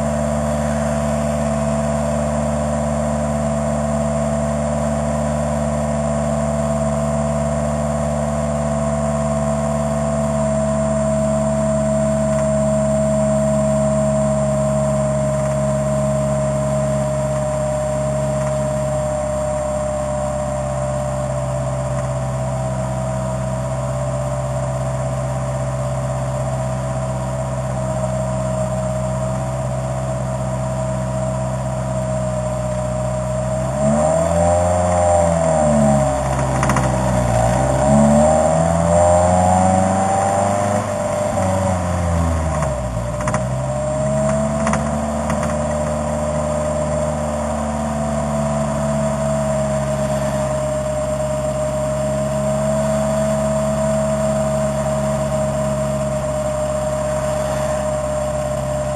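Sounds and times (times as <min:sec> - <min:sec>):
vehicle engine revving: 0:00.0 - 0:06.0, 0:32.7 - 0:58.9.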